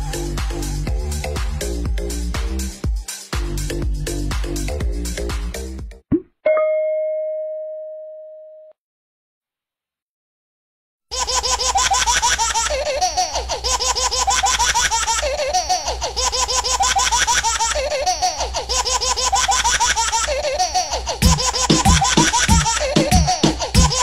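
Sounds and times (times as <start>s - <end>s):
background music with beat: 0.0s - 6.0s, 21.2s - 24.0s
baby laughing: 11.1s - 24.0s.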